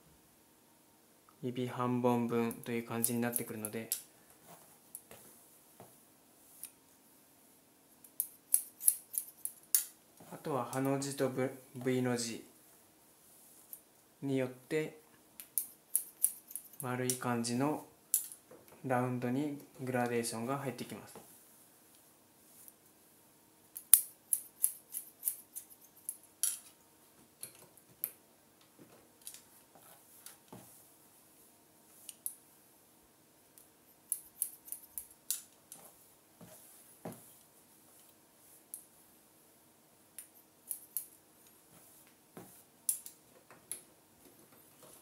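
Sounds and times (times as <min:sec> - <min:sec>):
scissors snipping hair: 0:08.2 - 0:09.9, 0:15.4 - 0:16.8, 0:23.8 - 0:26.2, 0:34.1 - 0:35.5, 0:40.6 - 0:41.1.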